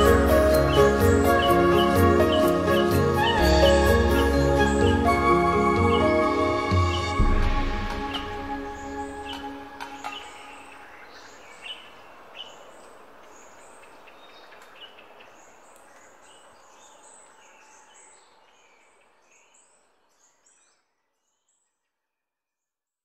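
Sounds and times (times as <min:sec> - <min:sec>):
high falling chirps: 0:00.0 - 0:11.0
background music: 0:00.0 - 0:11.4.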